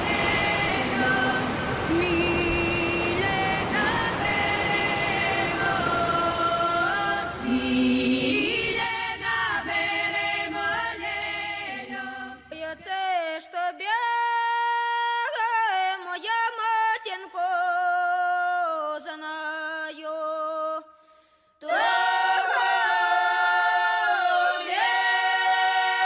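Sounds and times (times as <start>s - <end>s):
unaccompanied voices singing: 0.0s - 14.2s, 21.6s - 26.0s.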